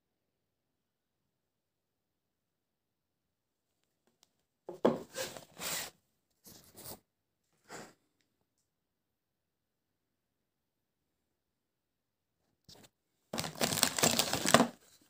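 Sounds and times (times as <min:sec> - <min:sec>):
knife knocking on wooden table: 0:04.7 - 0:05.1
plastic wrapping rustling: 0:13.4 - 0:15.0.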